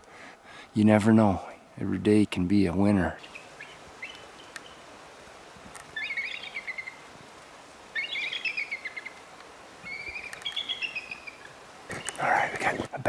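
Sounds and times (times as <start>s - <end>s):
short high chirping calls: 5.9s - 7.0s, 7.9s - 9.2s, 9.8s - 12.2s.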